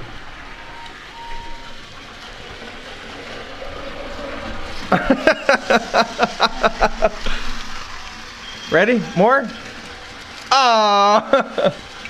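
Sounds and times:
young child laughing: 4.9 - 7.4.

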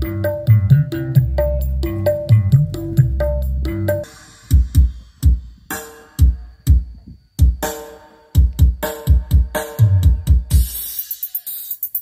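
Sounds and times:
deep kick drums: 0.0 - 7.7, 8.4 - 10.8
electronic dance music: 8.9 - 12.0.

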